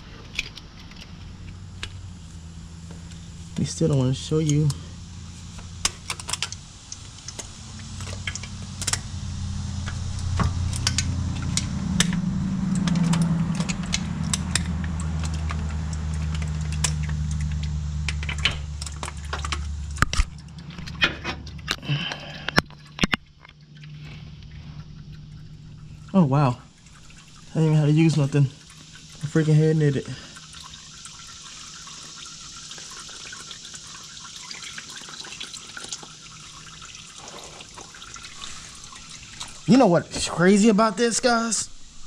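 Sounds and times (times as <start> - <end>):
low hum: 0.0 - 34.3, 37.7 - 42.0.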